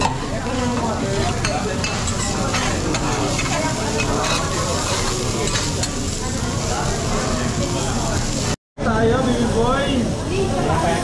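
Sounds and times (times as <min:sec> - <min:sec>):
diners chatting: 0:00.0 - 0:11.0
food sizzling on a griddle: 0:00.2 - 0:11.0
metal spatulas scraping: 0:00.6 - 0:06.0.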